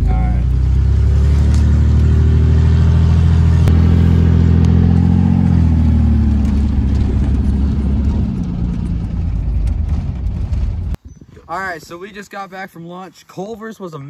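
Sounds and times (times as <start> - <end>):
pickup engine droning in cab: 0.0 - 11.0.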